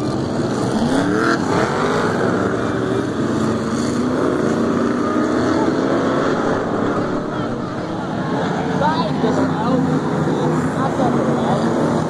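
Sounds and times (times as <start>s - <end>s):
race car engines passing: 0.0s - 12.0s.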